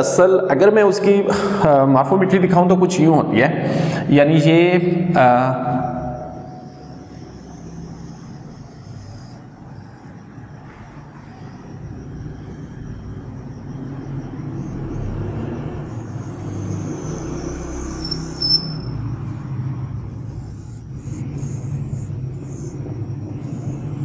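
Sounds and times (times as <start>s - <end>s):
marker squeaking on whiteboard: 16.0s - 19.0s.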